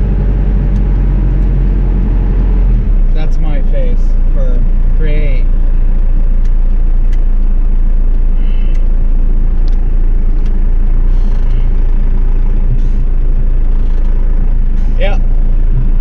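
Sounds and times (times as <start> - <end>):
diesel engine droning in cab: 0.0 - 16.0.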